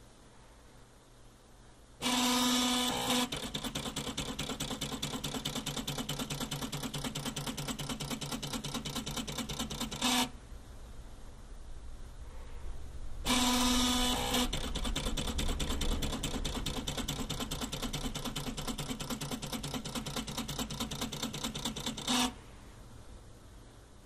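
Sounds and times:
stepper motor buzzing: 2.0 - 10.4, 13.2 - 22.4
printer pen ticking: 2.1 - 10.3, 13.3 - 22.4.

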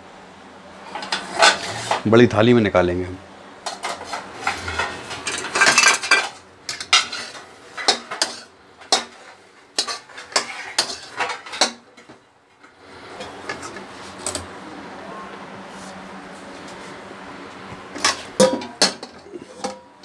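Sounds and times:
metal spatula scraping a pan: 0.8 - 2.0, 3.7 - 11.8.

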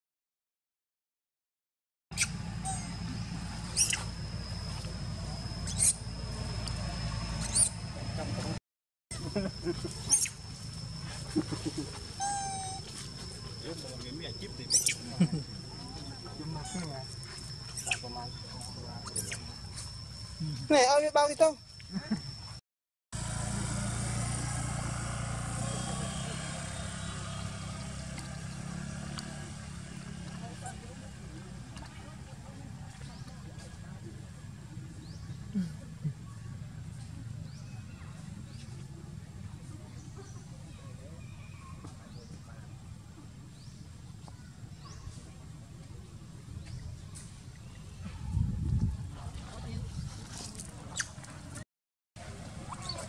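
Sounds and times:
monkeys squeaking: 2.2 - 4.6, 5.3 - 6.2, 7.3 - 8.2, 9.1 - 21.4, 50.9 - 51.2, 52.7 - 53.0
engine idling hum: 2.2 - 8.6, 9.2 - 20.9, 23.2 - 47.6
steady high whine: 2.3 - 8.6, 9.2 - 22.6.

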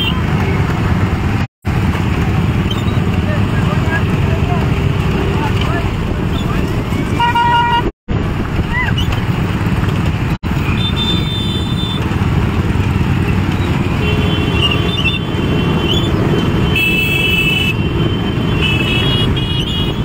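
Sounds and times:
horns honking: 0.0 - 0.9, 6.4 - 7.9, 10.5 - 12.2, 13.3 - 20.0
motorcycle engines running: 0.0 - 20.0.

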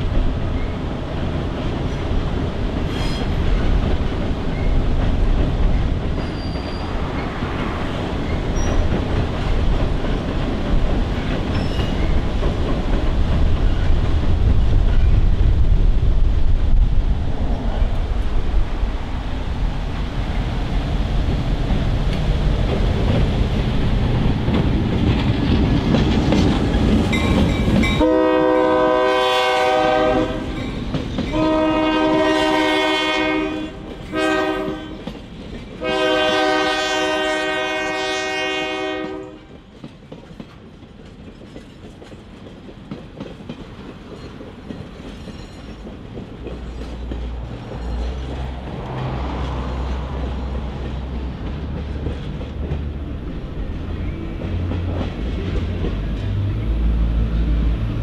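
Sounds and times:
train wheels clicking over rail joints: 0.0 - 16.6, 20.2 - 28.9, 29.8 - 32.5, 33.8 - 36.8, 39.0 - 57.9
diesel locomotive rumbling: 0.0 - 58.0
train horn: 27.9 - 35.1, 35.8 - 39.6.

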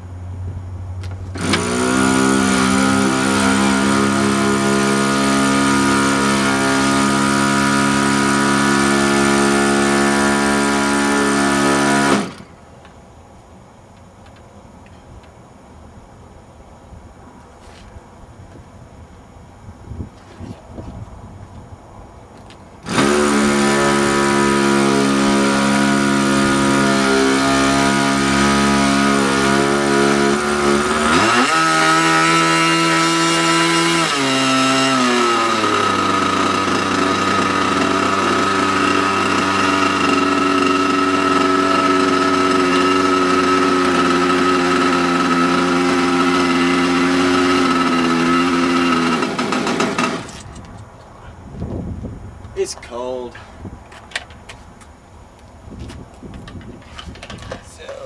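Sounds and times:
model airplane engine running: 22.9 - 50.3.

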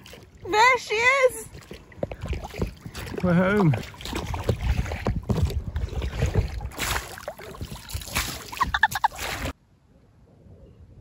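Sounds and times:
oars splashing in water: 0.0 - 9.6
wind on microphone: 1.9 - 8.8.

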